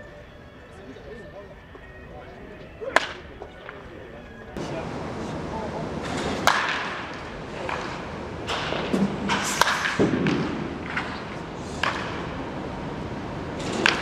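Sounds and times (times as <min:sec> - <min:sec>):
bat hitting ball: 0:06.0 - 0:12.4, 0:13.6 - 0:14.0.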